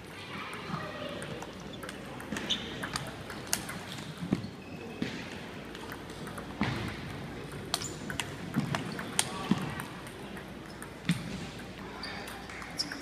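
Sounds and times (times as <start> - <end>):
murmur of voices: 0.0 - 13.0
table tennis balls clicking: 0.5 - 13.0.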